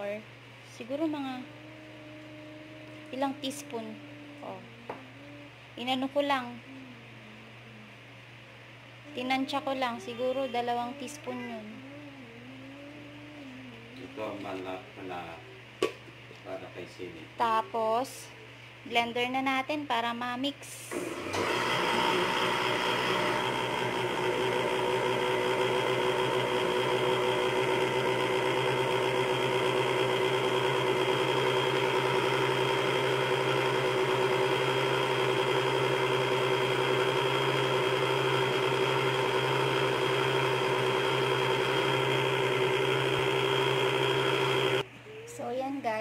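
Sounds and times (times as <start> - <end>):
blender motor humming: 20.9 - 44.9.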